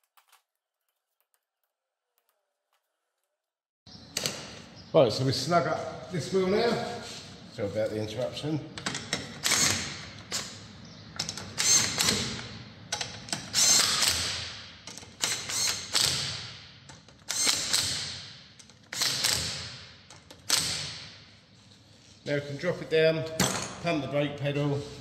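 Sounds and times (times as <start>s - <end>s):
impact wrench bursts: 9.1s - 10.6s, 11.4s - 12.5s, 13.3s - 16.6s, 17.2s - 21.1s.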